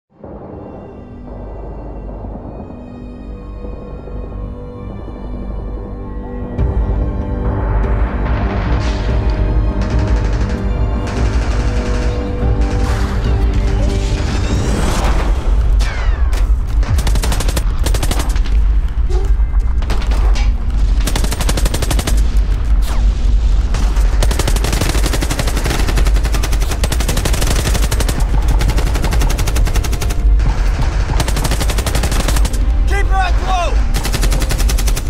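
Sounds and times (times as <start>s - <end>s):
machine-gun and rifle fire: 9.8s - 13.2s, 16.8s - 18.6s, 21.0s - 22.6s, 23.7s - 32.8s, 33.9s - 35.0s.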